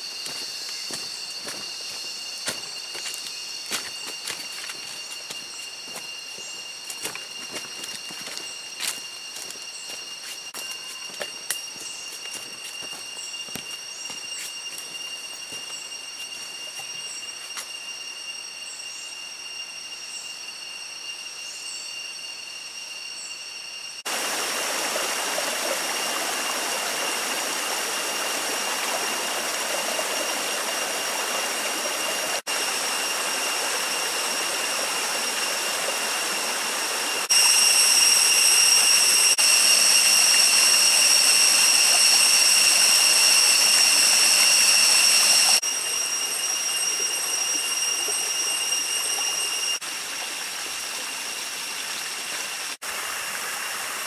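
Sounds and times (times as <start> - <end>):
cicadas droning: 0.0 - 54.0
stream rushing: 24.1 - 54.0.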